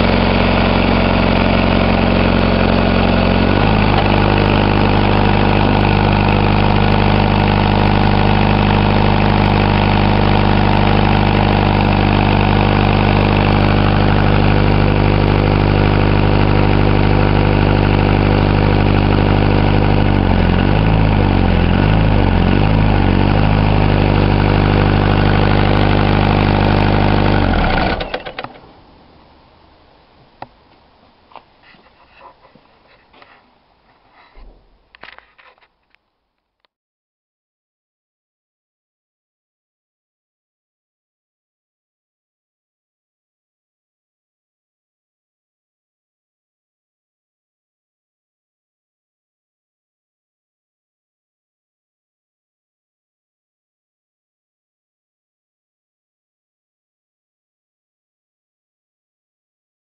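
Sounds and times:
diesel engine driving air compressor: 0:00.0 - 0:28.4.

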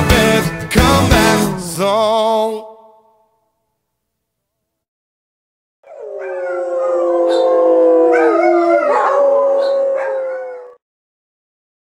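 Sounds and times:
dog howling: 0:05.8 - 0:10.8.

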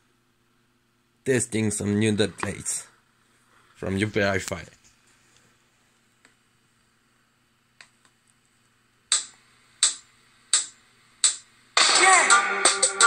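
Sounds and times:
percussive count-in ticks: 0:09.1 - 0:11.4.

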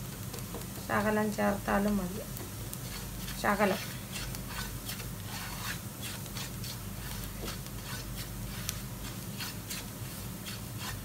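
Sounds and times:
spatula scraping frying pan: 0:02.7 - 0:11.0.

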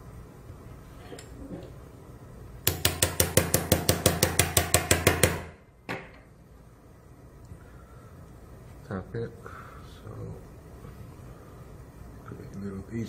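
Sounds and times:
mallet tapping an awl: 0:02.7 - 0:06.0.

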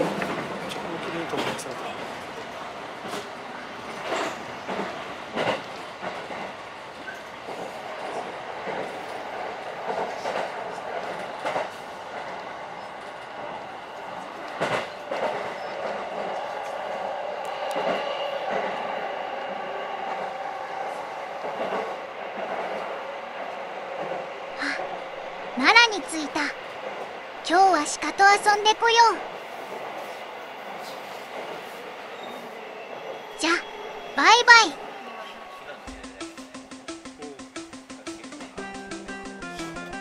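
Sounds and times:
sharp track clacks: 0:35.9 - 0:40.0.

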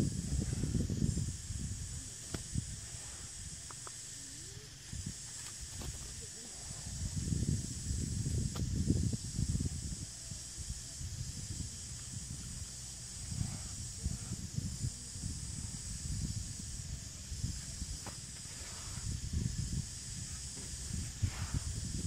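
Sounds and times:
wind buffeting microphone: 0:00.0 - 0:03.7, 0:04.7 - 0:22.0
high-pitched hiss: 0:00.0 - 0:22.0.

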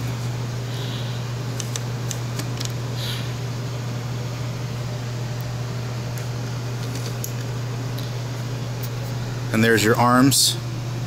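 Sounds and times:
room noise hum and hiss: 0:00.0 - 0:11.0.

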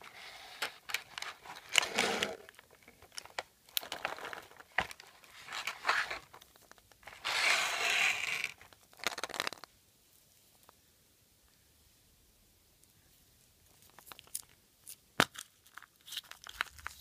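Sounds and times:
foil wrappers crinkling: 0:02.4 - 0:07.2, 0:08.3 - 0:09.7, 0:15.2 - 0:17.0.

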